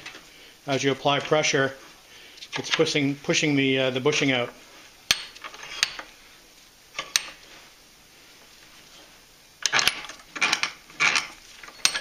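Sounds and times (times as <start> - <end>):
metal tools clinking: 9.6 - 12.0.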